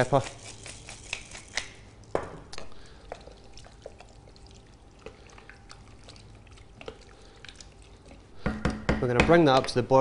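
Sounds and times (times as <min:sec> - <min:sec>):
liquid sloshing: 0:02.6 - 0:08.4
spoon knocking pot: 0:08.4 - 0:09.8.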